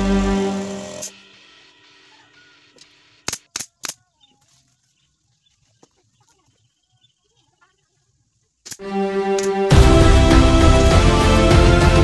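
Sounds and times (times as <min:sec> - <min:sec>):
pneumatic nail gun firing: 0:00.0 - 0:01.2.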